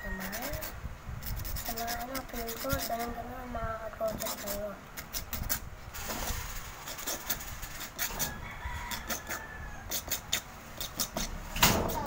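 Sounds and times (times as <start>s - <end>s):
rooster crowing: 0.0s - 0.6s, 8.1s - 10.0s.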